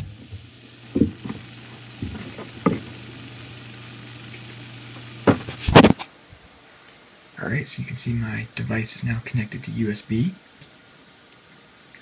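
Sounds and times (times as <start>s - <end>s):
low hum and hiss: 0.0s - 12.0s
camera handling knocks and rubs: 5.3s - 6.1s.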